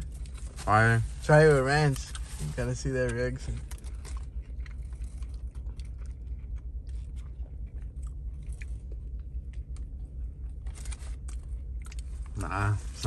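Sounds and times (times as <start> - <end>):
person chewing food: 0.0 - 0.6, 1.9 - 12.7
low hum: 0.0 - 13.0
paper wrapper crinkling: 10.6 - 11.5.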